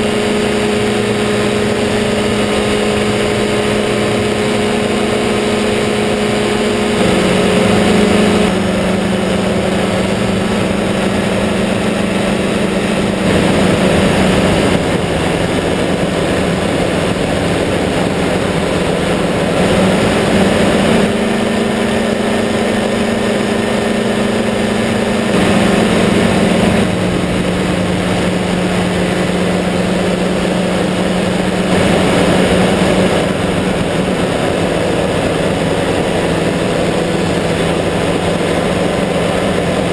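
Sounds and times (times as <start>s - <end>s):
ultralight engine and propeller: 0.0s - 39.9s
wind rushing: 5.2s - 39.0s.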